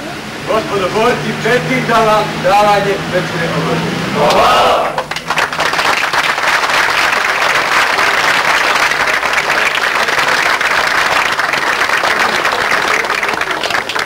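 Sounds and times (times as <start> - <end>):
crowd applauding: 4.2 - 14.0.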